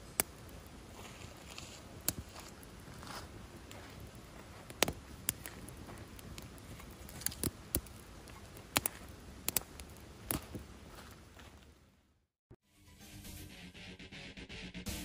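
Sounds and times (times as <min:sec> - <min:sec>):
burning wood popping: 0:00.0 - 0:11.8
campfire crackling: 0:00.0 - 0:12.1.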